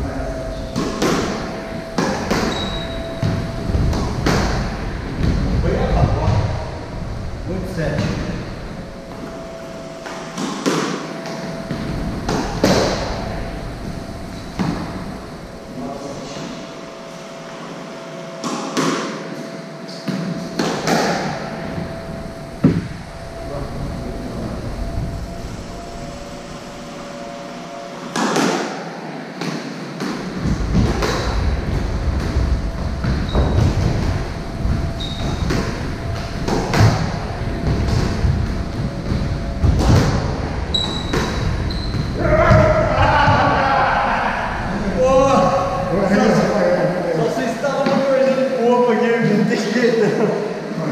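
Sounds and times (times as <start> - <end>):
squash ball hits echoing: 0.6 - 5.6, 10.0 - 15.3, 18.4 - 21.8, 28.0 - 28.8, 29.4 - 34.2, 35.0 - 43.6
shoes squeaking on wooden floor: 2.2 - 3.6, 40.7 - 43.4.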